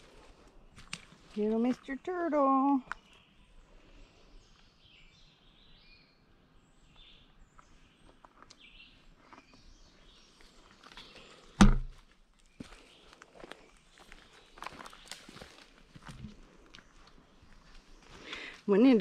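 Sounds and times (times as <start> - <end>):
loud thump: 11.6 - 11.9.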